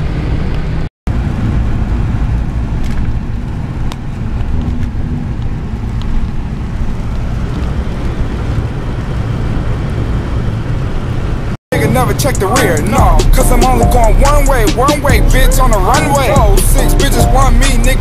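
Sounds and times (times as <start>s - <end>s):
tyres on wet tarmac: 0.0s - 13.0s
car engine rumble: 0.0s - 18.0s.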